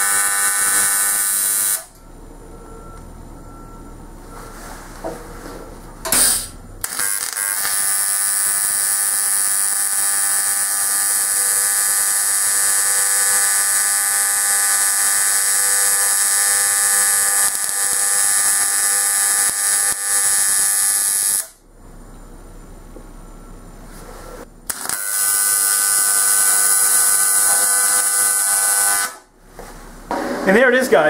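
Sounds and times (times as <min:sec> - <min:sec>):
welding arc buzzing: 0:00.0 - 0:02.0, 0:06.1 - 0:21.6, 0:24.6 - 0:29.3
welding arc crackle: 0:00.0 - 0:02.0, 0:06.2 - 0:21.6, 0:24.7 - 0:29.3.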